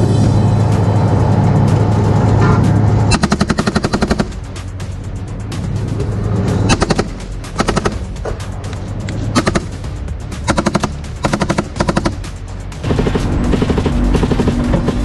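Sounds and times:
steady low drone: 0.0 - 15.0
machine gun bursts: 3.1 - 4.4, 6.7 - 8.0, 9.4 - 9.8, 10.5 - 12.2.

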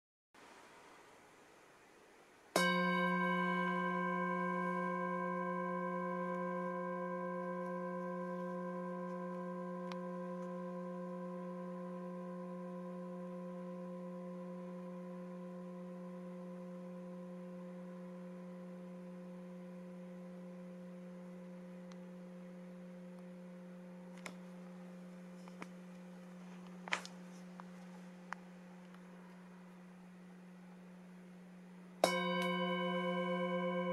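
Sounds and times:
singing bowl ringing: 2.6 - 24.1, 32.0 - 33.9.

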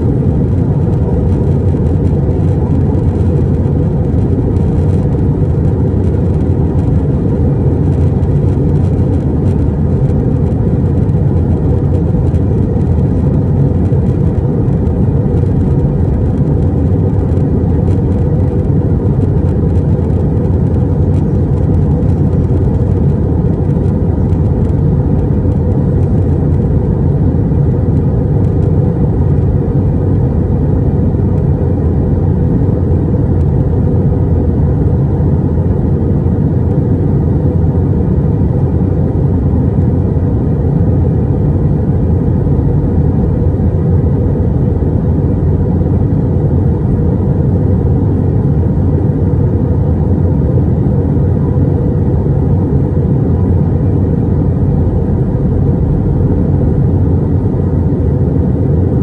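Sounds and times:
airliner cabin roar: 0.0 - 59.0.

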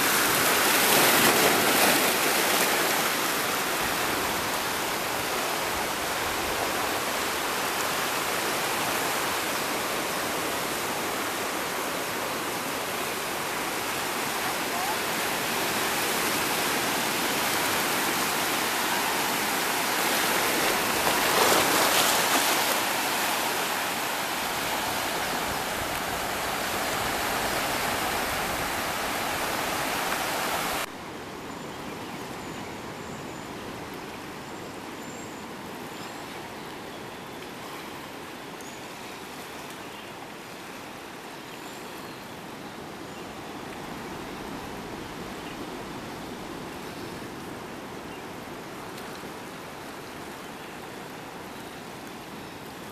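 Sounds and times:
calm sea washing on sand: 0.0 - 30.9
seawater churning around rocks: 17.6 - 28.6.

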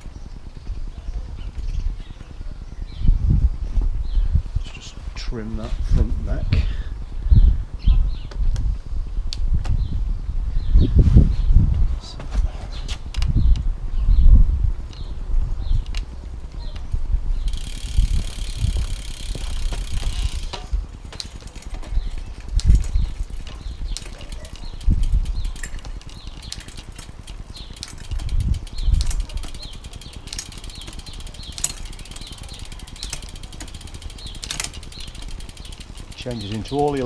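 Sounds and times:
bicycle chain running over gears: 14.8 - 37.0
fast even ticking: 17.5 - 37.0.

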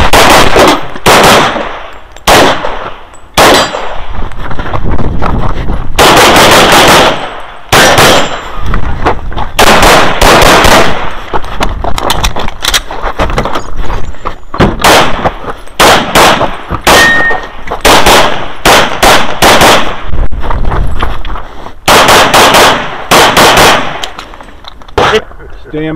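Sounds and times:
pistol gunshots: 0.0 - 4.1, 6.0 - 8.6, 9.6 - 11.3, 14.6 - 20.1, 21.8 - 24.3.

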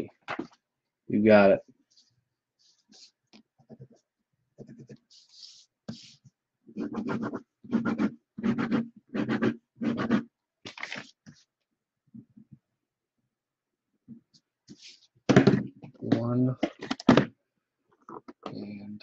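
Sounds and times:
pen scratching while writing: 4.6 - 10.3.

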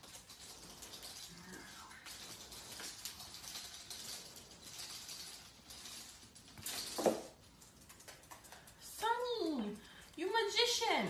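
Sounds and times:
claws rattling on metal bars: 0.0 - 11.0
clatter and thump: 2.5 - 8.4.

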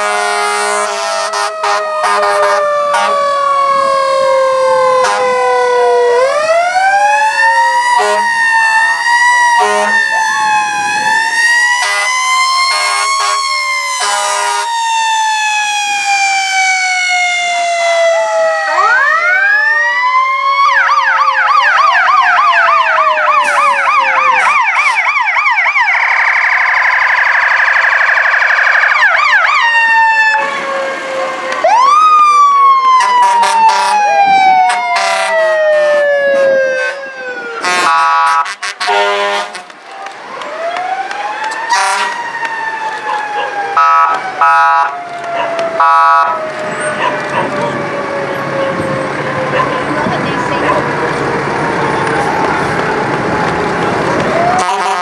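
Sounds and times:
vehicle horn blasts: 0.0 - 3.1, 37.6 - 39.6, 54.6 - 55.0
emergency sirens wailing and yelping: 0.0 - 55.0.

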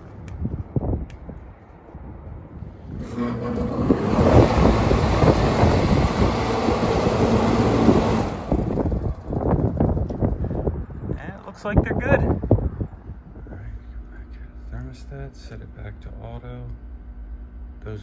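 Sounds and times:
low motor hum: 0.0 - 11.2, 12.2 - 18.0
fans rushing air: 2.4 - 15.8.

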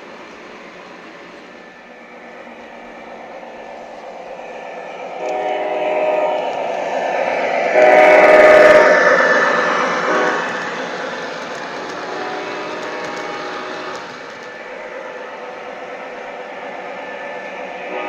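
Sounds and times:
model locomotive engine and rolling: 0.0 - 18.0
locomotive horn chord: 5.2 - 6.6, 7.7 - 9.0, 10.1 - 10.6, 11.8 - 14.2.

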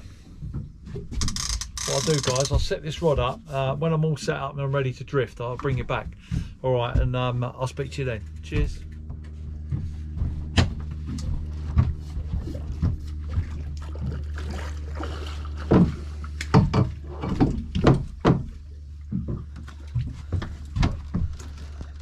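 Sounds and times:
boat engine idling: 0.0 - 22.0
fishing reel knocks and clicks: 1.2 - 2.6.

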